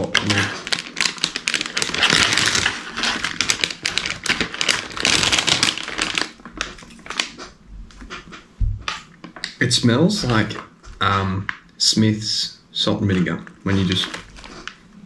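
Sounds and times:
plastic snack bag crinkling: 0:00.0 - 0:07.4, 0:10.1 - 0:11.9, 0:13.2 - 0:15.0.

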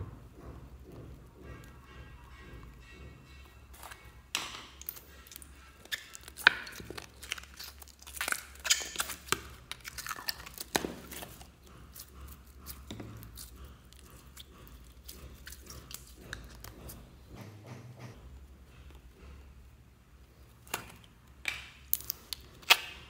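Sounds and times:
slime crackling and popping: 0:04.4 - 0:12.1, 0:20.7 - 0:23.0.

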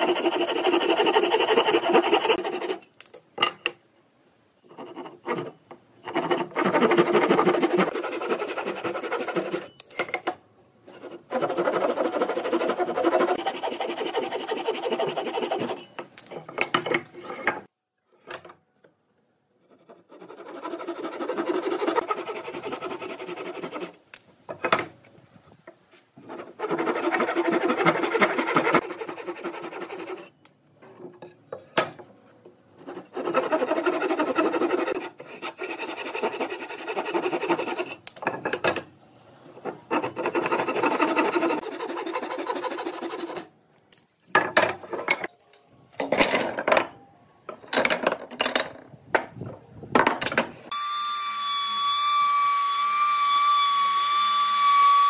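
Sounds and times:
handsaw rasping through wood: 0:00.0 - 0:02.8, 0:06.1 - 0:09.7, 0:11.3 - 0:15.8, 0:20.4 - 0:24.0, 0:26.4 - 0:30.2, 0:32.9 - 0:37.9, 0:39.9 - 0:43.4.

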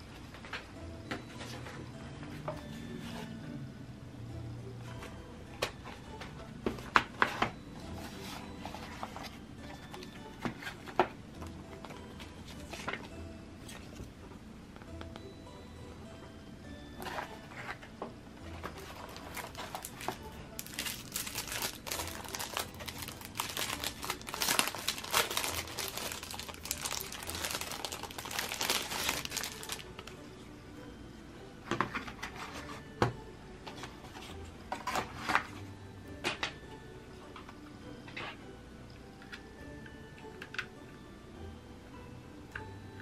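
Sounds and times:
plastic bag crinkling: 0:18.8 - 0:30.1.

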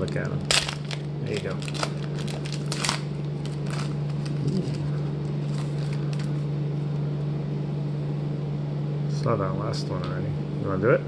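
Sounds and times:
wrapper crinkling: 0:00.0 - 0:06.4
steady low hum: 0:00.0 - 0:11.0.

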